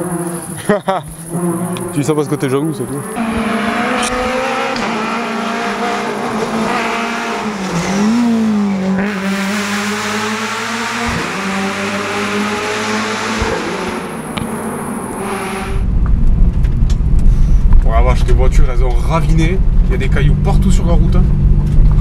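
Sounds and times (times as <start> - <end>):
rally car engine at high revs: 0.0 - 2.2, 2.8 - 15.8.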